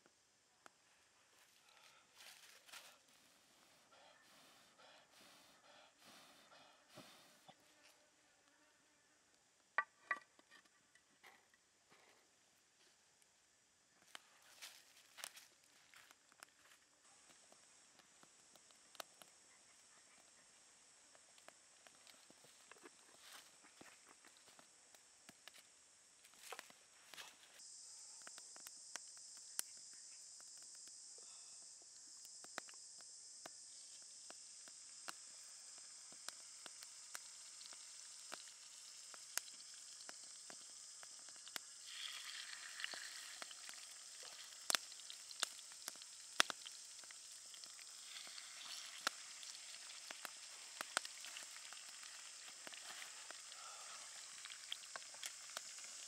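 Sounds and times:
fish sizzling in hot oil: 34.3 - 56.0.

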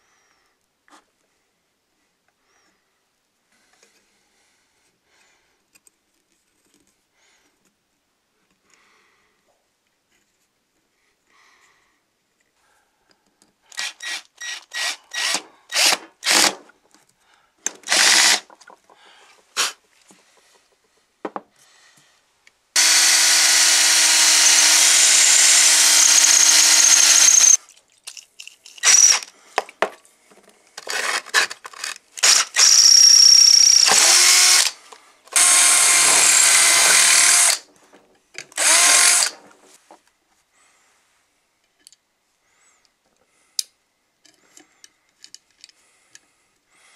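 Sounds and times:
cordless drill bursts: 13.7 - 16.6, 17.8 - 18.5, 22.8 - 27.6, 28.8 - 29.3, 32.2 - 37.7, 38.6 - 39.4
drill running steadily: 13.8 - 16.6, 17.9 - 18.4, 22.8 - 27.6, 28.8 - 29.2, 32.2 - 37.7, 38.6 - 39.4.

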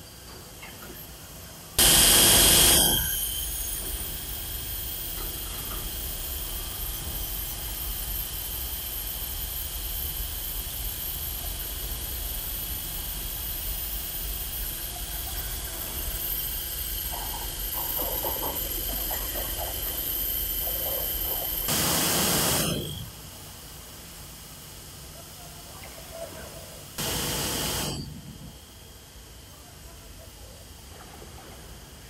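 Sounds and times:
laminating machine humming: 1.8 - 23.2
high whine: 15.6 - 23.2.

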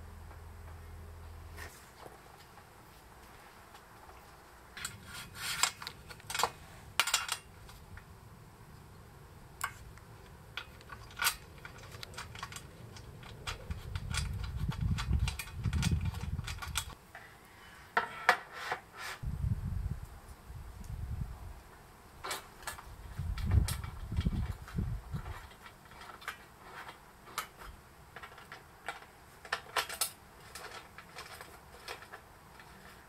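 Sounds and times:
small metal parts clinking: 4.8 - 7.8, 10.5 - 17.0, 22.2 - 33.0.

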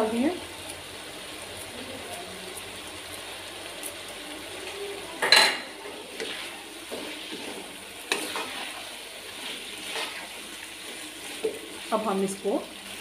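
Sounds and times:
frying sizzle: 0.0 - 13.0
spoon stirring and scraping in wok: 5.2 - 13.0.

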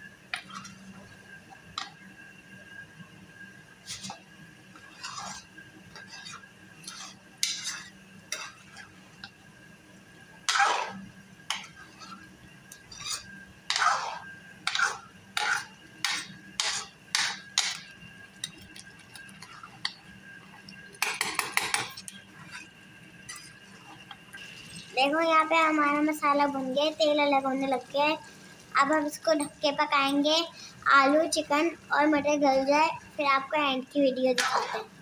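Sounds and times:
metal ladle scraping pot: 4.8 - 8.9, 12.8 - 17.8, 23.3 - 24.0.

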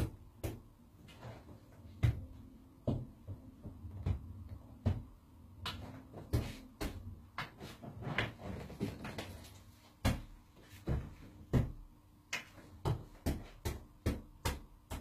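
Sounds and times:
irregular knocks and thuds: 1.9 - 7.6, 10.0 - 11.9.

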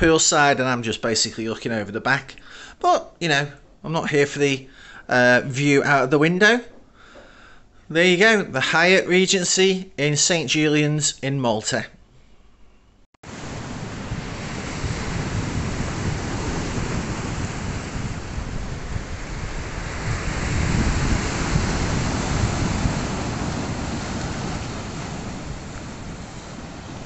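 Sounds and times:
wind buffeting microphone: 13.2 - 27.0
waves breaking on rocks: 13.3 - 27.0.

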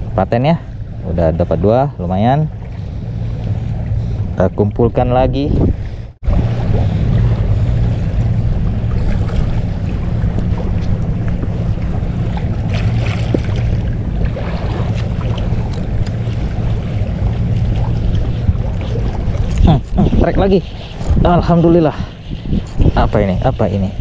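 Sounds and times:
outboard motor running: 0.0 - 23.7
wind buffeting microphone: 0.0 - 24.0.

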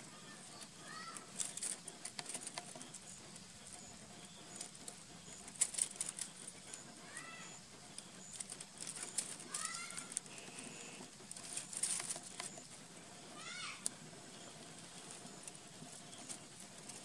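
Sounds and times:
dry leaves crackling: 8.3 - 12.5.

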